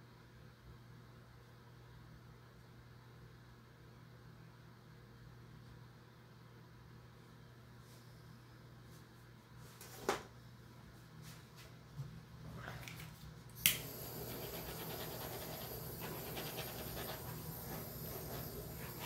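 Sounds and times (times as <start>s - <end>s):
butane torch clicking on: 13.6s - 14.6s
torch flame hissing: 13.7s - 19.0s.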